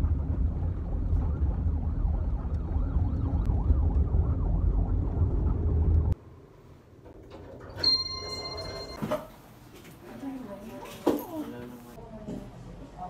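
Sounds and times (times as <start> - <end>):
car road noise rumble: 0.0 - 6.2
faint warbling siren: 0.0 - 6.2.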